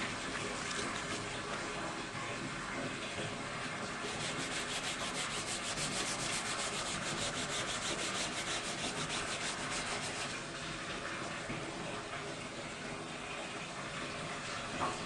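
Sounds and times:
sponge scrubbing fabric: 0.0 - 1.6, 3.9 - 10.4.

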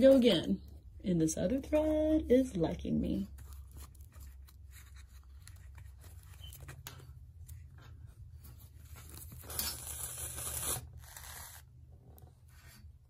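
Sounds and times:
paper and needle rustling: 3.2 - 12.9
thread rasping through paper: 3.2 - 12.9.

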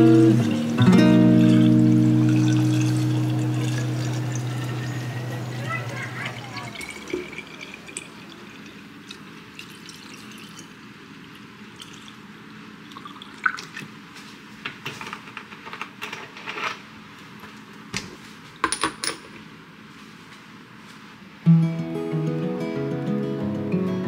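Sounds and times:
faint liquid sounds: 0.0 - 14.4.

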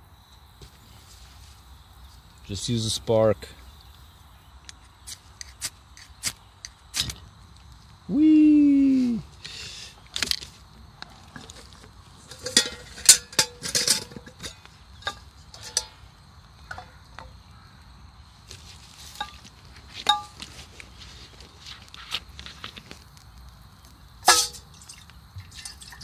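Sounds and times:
metal camp gear clinking: 11.2 - 17.3, 19.1 - 20.5, 24.2 - 26.0.

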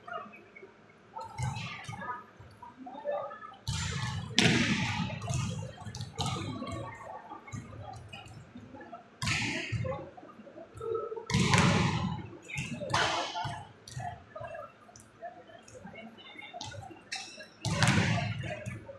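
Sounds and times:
volleyballs slapping and thudding: 3.6 - 8.4, 9.2 - 10.0, 10.8 - 14.2, 17.6 - 18.8.

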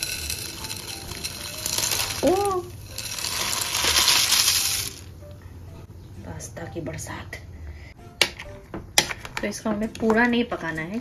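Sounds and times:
dry pasta rattling into pot: 0.0 - 5.1.

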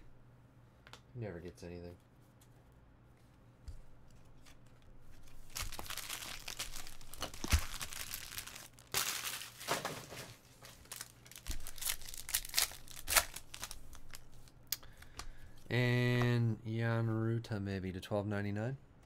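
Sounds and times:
foil pack crinkling and ripping: 5.4 - 14.3.

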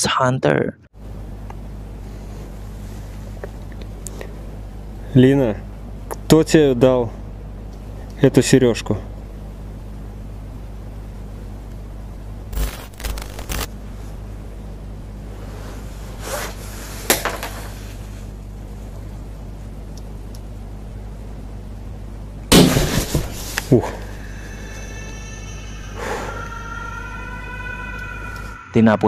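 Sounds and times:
low electrical hum: 0.0 - 29.0
loud burst of noise: 12.5 - 13.7.

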